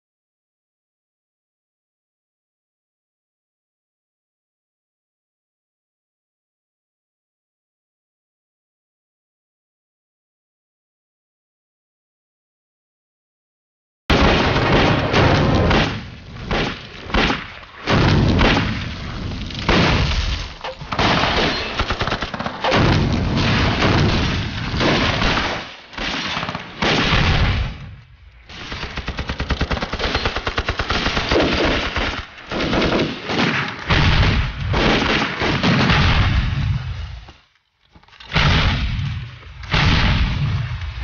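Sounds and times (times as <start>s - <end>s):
machine-gun and rifle fire: 14.1s - 27.9s, 28.5s - 36.8s
heavy explosions: 14.1s - 30.1s, 30.9s - 37.3s, 38.3s - 41.0s.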